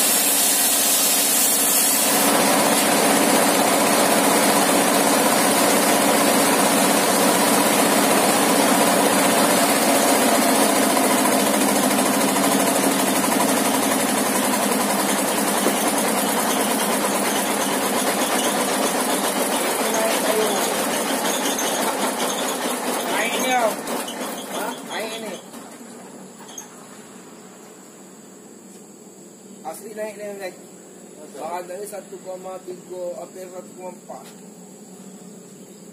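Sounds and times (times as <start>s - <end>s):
sawmill engine humming: 0.0s - 26.6s.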